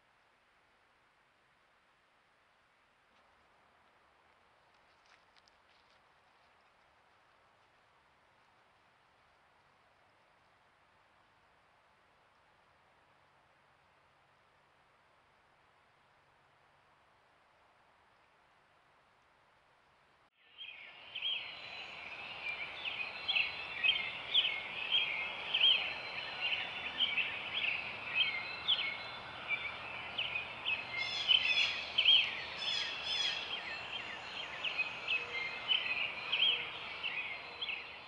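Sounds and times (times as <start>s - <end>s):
songbirds chirping: 2.4s - 38.0s.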